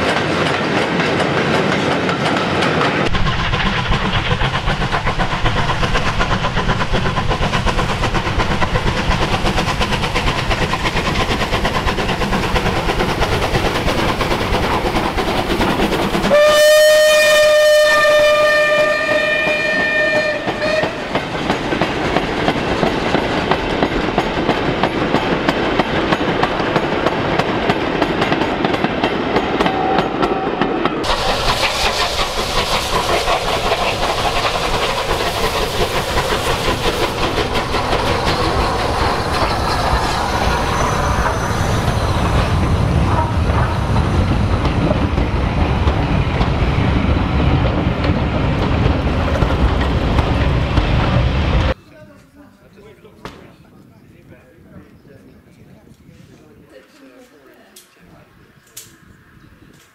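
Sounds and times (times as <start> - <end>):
passenger coaches rumbling past: 0.0 - 51.8
steam locomotive whistle: 16.2 - 21.2, 29.6 - 30.8.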